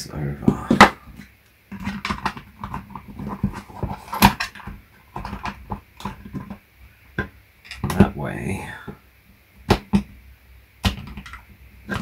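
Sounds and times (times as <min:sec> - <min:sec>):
plastic case clicks and rattles: 0:01.7 - 0:06.6, 0:10.8 - 0:12.0.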